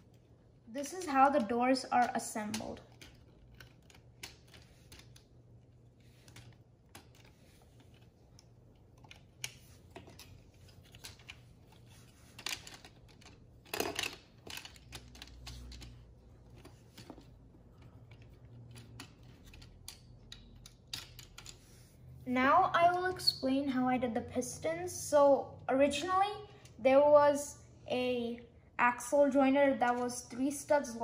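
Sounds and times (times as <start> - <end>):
plastic parts clicking and clattering: 0.0 - 21.7.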